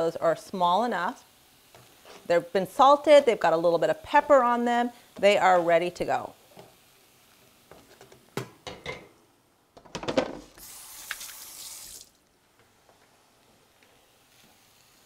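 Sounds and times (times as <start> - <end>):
kitchen faucet running: 10.6 - 12.1.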